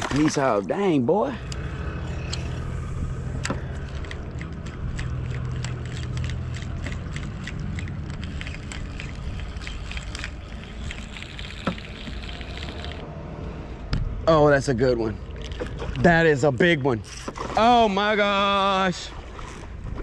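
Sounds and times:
steady low hum: 0.0s - 20.0s
fishing reel clicking: 1.4s - 2.8s, 3.4s - 13.0s.

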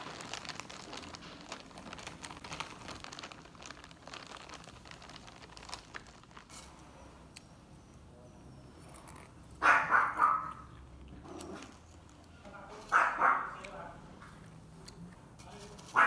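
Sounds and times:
chips crunching and crackling: 0.0s - 6.9s, 10.5s - 13.8s.

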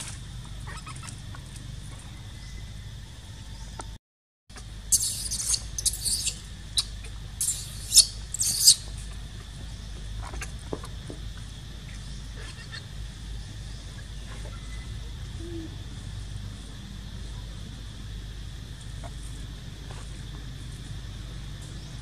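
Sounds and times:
baby monkey squealing: 0.6s - 1.2s, 4.9s - 9.0s, 12.4s - 12.9s.

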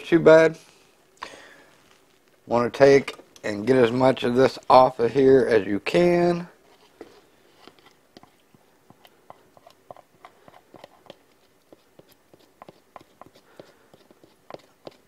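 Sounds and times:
spatula scraping and tapping container: 6.7s - 15.0s.

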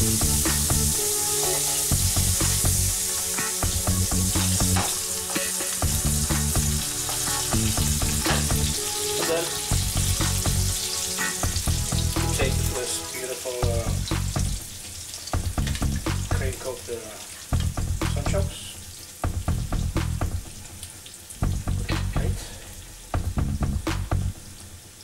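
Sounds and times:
bacon sizzling in a pan: 0.0s - 21.7s.

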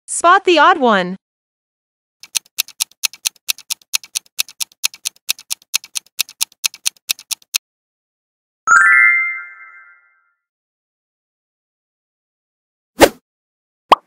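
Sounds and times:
clock tick-tock: 2.2s - 7.6s.

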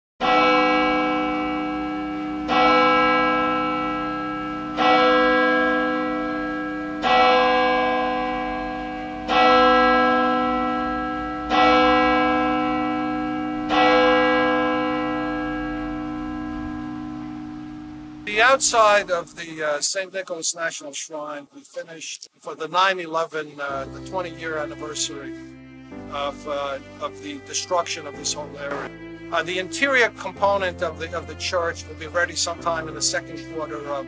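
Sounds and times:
church bell tolling: 0.2s - 19.4s.

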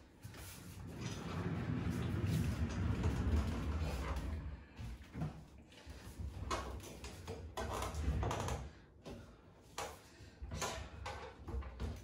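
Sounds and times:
office chair casters rumbling: 0.4s - 5.1s.

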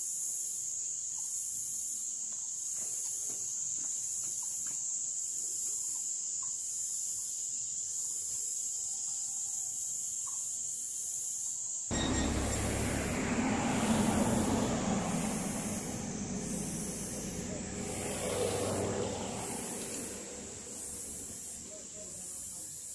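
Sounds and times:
insects buzzing: 9.8s - 22.9s
loud rumbling rush: 11.9s - 22.0s.

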